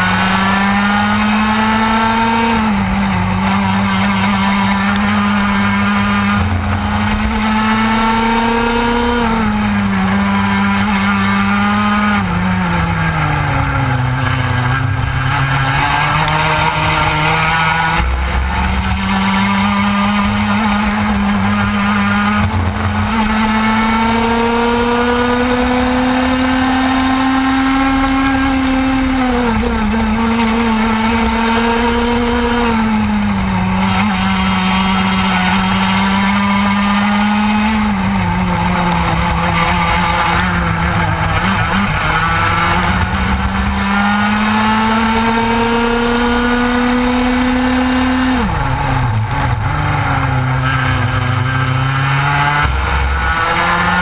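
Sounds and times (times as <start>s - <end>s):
two-stroke kart engine revving: 0.0s - 54.0s.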